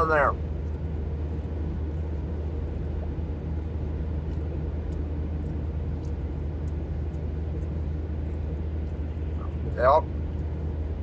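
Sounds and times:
car engine rumble: 0.0s - 11.0s
road noise: 0.0s - 11.0s.

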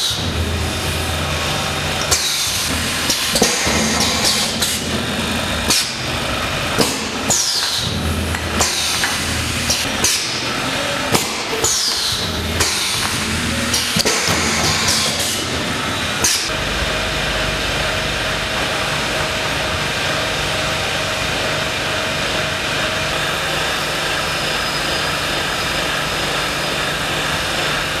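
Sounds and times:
pneumatic machine clacks: 0.0s - 0.5s, 1.1s - 28.0s
steady machine hum: 0.0s - 28.0s
air hissing: 0.8s - 22.0s.

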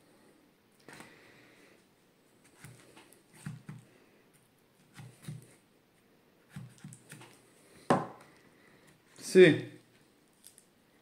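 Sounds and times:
knife knocking on cutting board: 7.9s - 8.2s.

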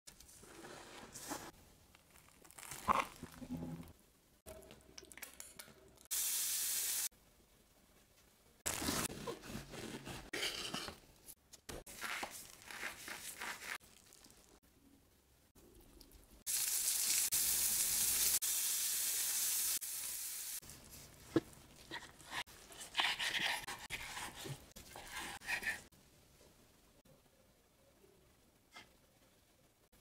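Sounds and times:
sizzling hiss: 6.1s - 7.1s, 16.5s - 20.6s.

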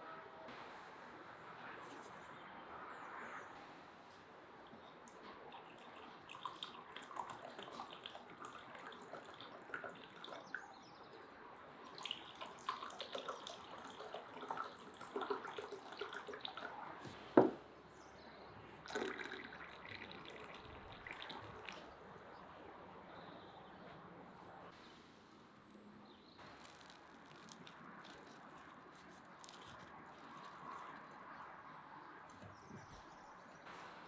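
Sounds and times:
water splashing and dripping: 5.0s - 17.3s, 18.8s - 22.0s.

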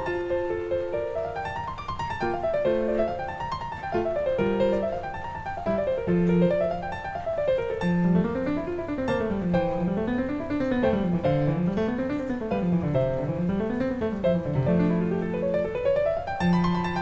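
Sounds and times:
classical piano music: 0.0s - 17.0s.

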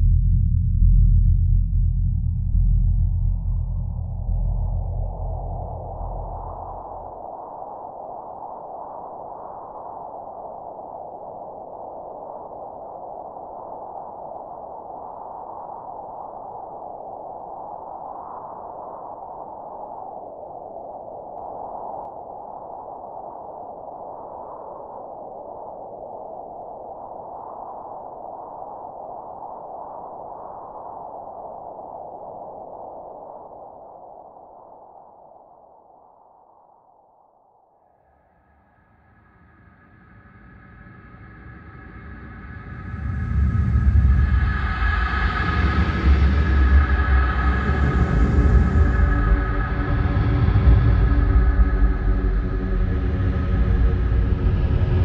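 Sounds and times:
low rumble: 0.0s - 7.3s, 39.0s - 55.0s.

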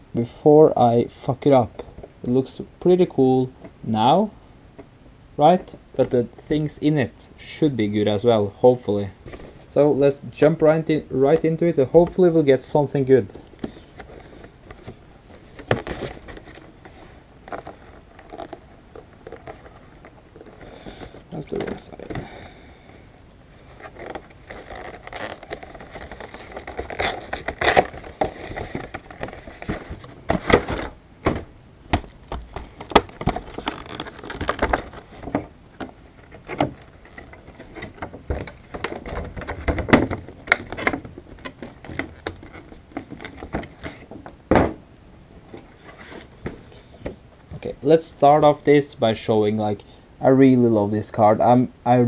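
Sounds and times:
plastic insert crinkling: 10.8s - 44.4s
cardboard box being opened: 13.7s - 22.2s, 23.6s - 44.1s.

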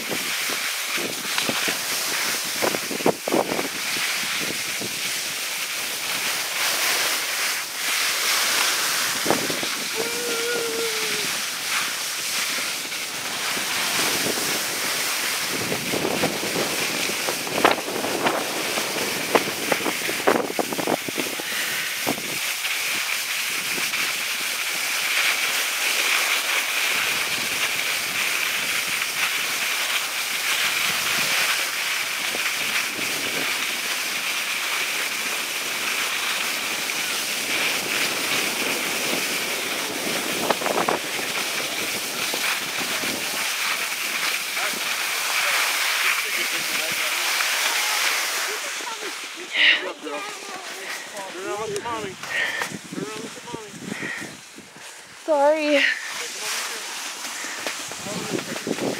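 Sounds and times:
wind on microphone: 0.0s - 5.4s, 8.5s - 24.1s, 36.9s - 44.9s, 51.5s - 56.1s, 57.4s - 58.9s
skis sliding over snow: 0.0s - 58.9s.

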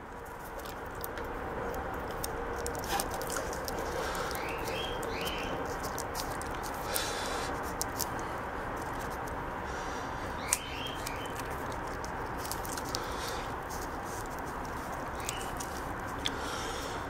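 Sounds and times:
tape rasping: 0.0s - 9.4s, 10.4s - 17.0s
small bird chirping: 4.0s - 5.8s, 10.3s - 11.8s, 15.0s - 15.9s.

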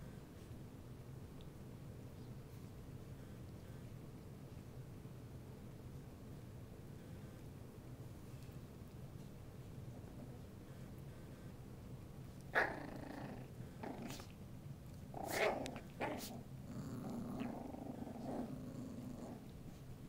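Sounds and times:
puppies play-growling: 12.4s - 20.0s.

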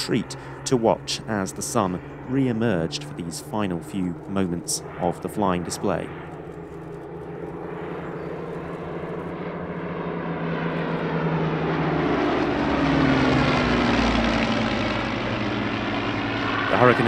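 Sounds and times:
propeller planes flying past: 0.0s - 17.0s.

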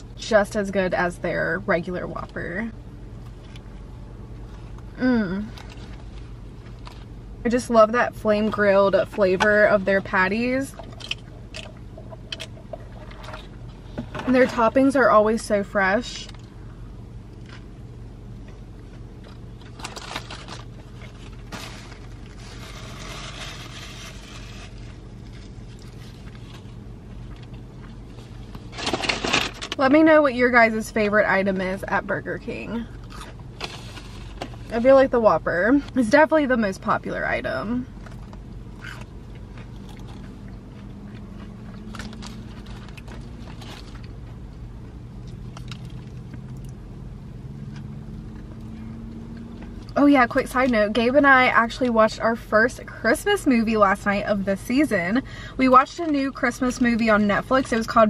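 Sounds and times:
low hum inside a car: 0.0s - 58.0s
paper napkin rustling: 19.8s - 26.8s
person chewing: 38.0s - 44.1s
small crunching clicks: 45.2s - 46.8s.

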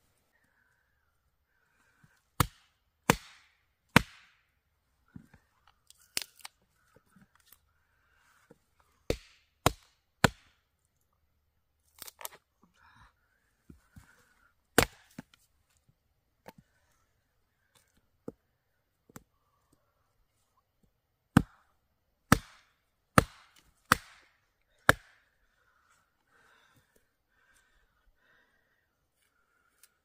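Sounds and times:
axe chopping wood: 2.4s - 4.4s, 9.1s - 10.6s, 14.8s - 15.3s, 21.3s - 21.6s, 22.3s - 25.2s.

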